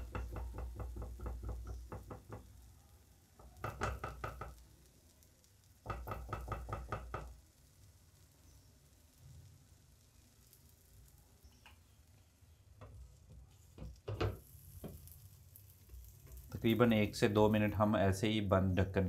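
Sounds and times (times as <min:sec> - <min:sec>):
spatula tapping a frying pan: 0:00.0 - 0:02.6, 0:03.4 - 0:04.6, 0:05.8 - 0:07.4, 0:13.8 - 0:15.2.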